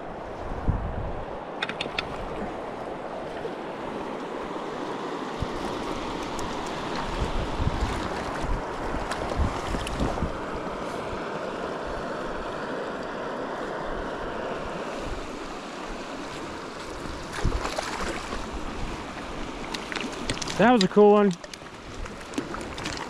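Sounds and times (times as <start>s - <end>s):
stream rushing over gravel: 4.6s - 12.3s, 14.8s - 23.0s.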